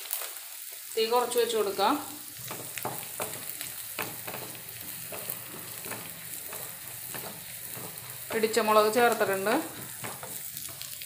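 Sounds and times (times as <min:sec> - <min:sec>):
food sizzling in oil: 0:00.0 - 0:11.0
wooden spatula scraping a pan: 0:02.4 - 0:11.0.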